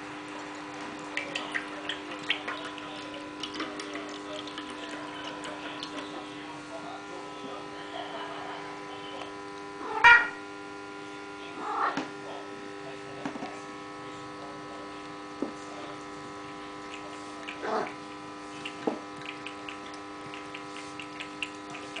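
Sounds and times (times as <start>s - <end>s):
steady electrical hum: 0.0s - 22.0s
cat lapping milk: 0.2s - 6.8s, 16.2s - 22.0s.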